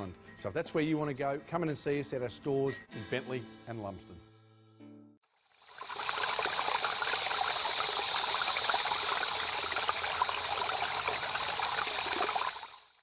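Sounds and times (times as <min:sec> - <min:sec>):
river water rushing: 0:05.6 - 0:13.0.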